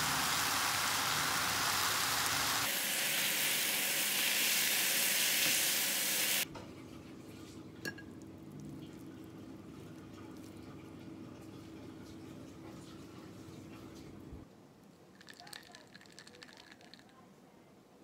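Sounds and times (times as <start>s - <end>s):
noodles sizzling in frying pan: 0.0s - 6.5s.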